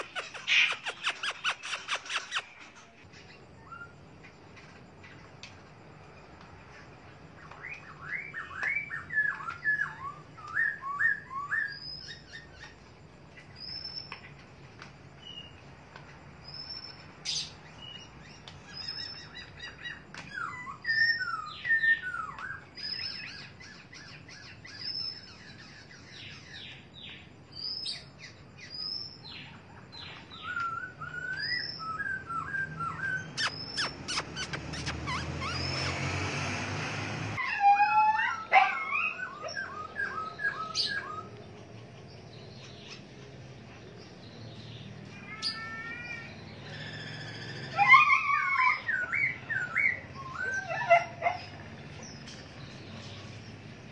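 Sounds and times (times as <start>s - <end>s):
songbird warbling: 0.0s - 5.2s, 16.4s - 36.0s, 37.4s - 43.2s.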